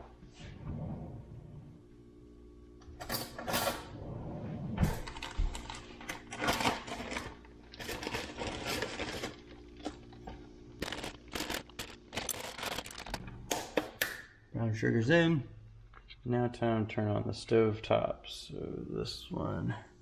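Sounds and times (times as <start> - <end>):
plastic bag crinkling: 5.0 - 13.3.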